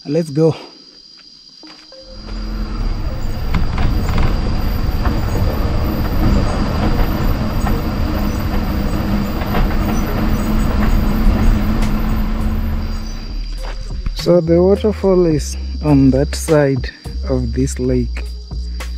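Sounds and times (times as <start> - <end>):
tyres rumbling on dirt road: 2.0 - 16.6.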